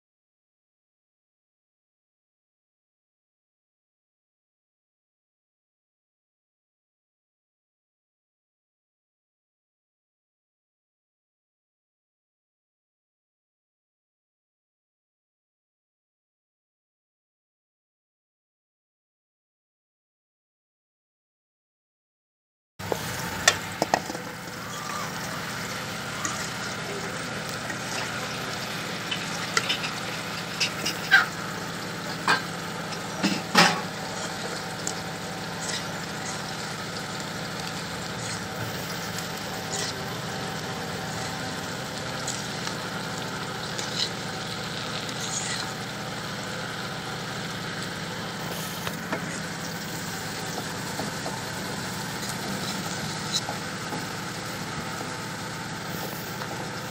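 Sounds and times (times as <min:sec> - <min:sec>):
metal spatula scraping a pan: 0:22.8 - 0:34.7
fish and onions sizzling in oil: 0:22.8 - 0:56.9.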